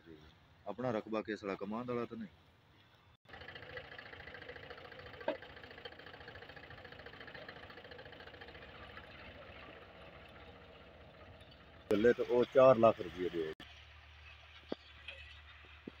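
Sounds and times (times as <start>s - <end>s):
tractor diesel engine running: 3.2s - 16.0s.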